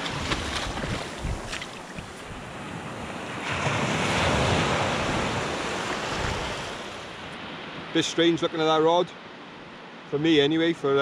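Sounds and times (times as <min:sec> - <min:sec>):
wind buffeting microphone: 0:00.0 - 0:08.0
surf washing over sand: 0:00.0 - 0:11.0.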